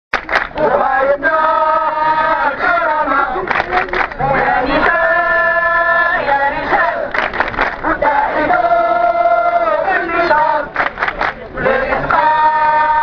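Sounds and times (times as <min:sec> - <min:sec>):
crowd chanting slogans: 0:00.3 - 0:13.0.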